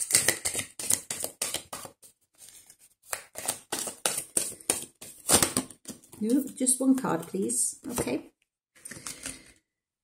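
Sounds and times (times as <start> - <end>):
cards being shuffled: 0.0 - 6.5.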